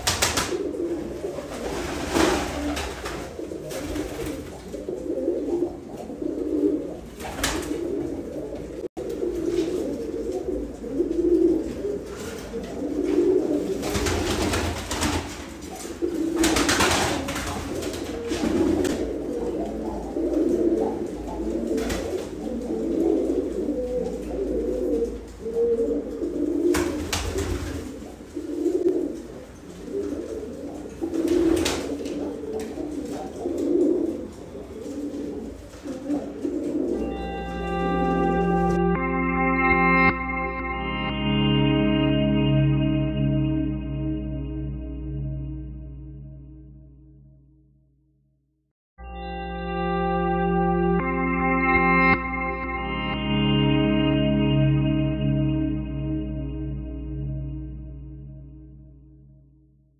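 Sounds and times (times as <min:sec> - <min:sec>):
pigeons cooing: 0:00.0 - 0:40.2.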